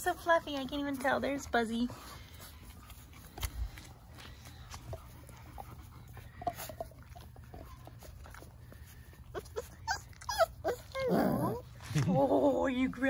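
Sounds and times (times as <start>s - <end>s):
faint low hum: 0.0s - 13.0s
puppies whining and yipping: 5.6s - 11.8s.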